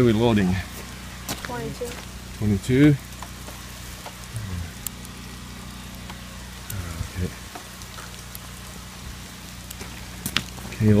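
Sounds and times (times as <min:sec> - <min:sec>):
light rain pattering: 0:00.0 - 0:11.0
low voice murmur: 0:04.4 - 0:04.8.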